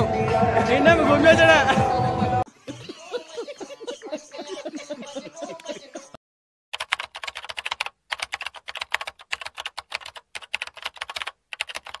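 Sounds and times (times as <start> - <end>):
keyboard typing: 6.7 - 12.0.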